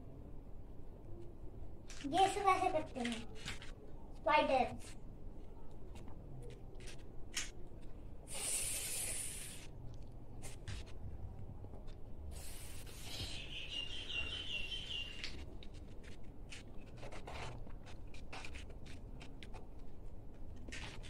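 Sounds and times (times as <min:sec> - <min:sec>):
plastic toy figures being handled: 0:01.8 - 0:08.0
high warbling chirp: 0:13.1 - 0:15.2.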